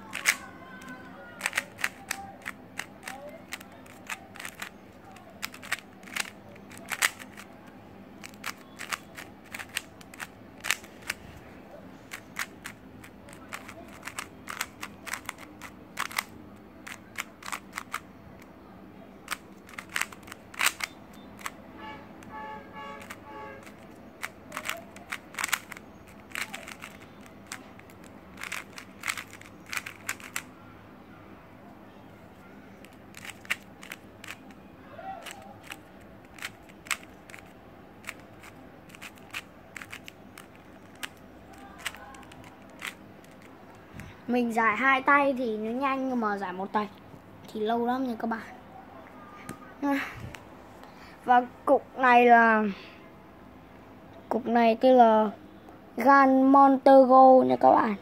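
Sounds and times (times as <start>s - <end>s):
puzzle cube clicking: 0.0s - 7.6s, 8.2s - 11.2s, 12.1s - 18.5s, 19.2s - 21.6s, 23.0s - 30.5s, 32.8s - 34.6s, 35.2s - 43.5s.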